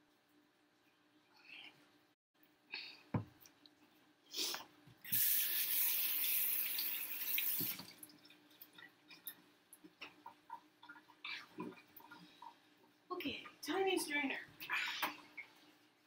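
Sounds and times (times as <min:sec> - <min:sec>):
kitchen tap running: 0:05.0 - 0:09.4.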